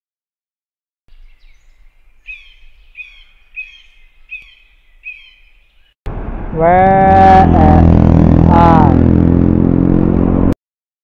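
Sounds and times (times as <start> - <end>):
bird chirping: 1.1 - 6.0
road traffic noise: 1.1 - 10.6
motorcycle engine: 6.1 - 10.6.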